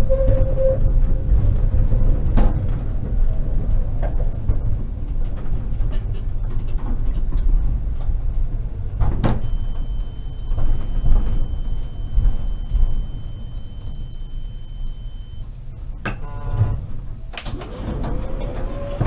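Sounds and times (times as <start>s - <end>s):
tram rumbling: 0.0s - 16.1s, 16.7s - 19.0s
high-pitched beep: 9.4s - 15.6s.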